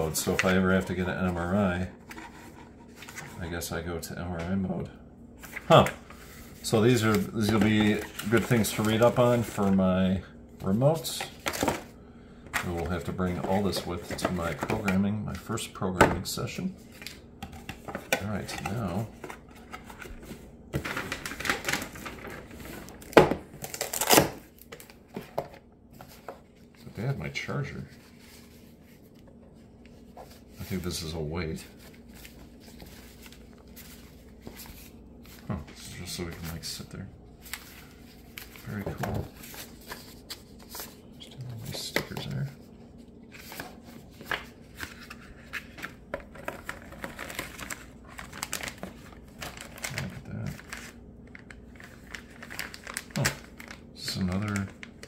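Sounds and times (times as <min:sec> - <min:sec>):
paper and plastic bag rustling: 0:18.3 - 0:55.0.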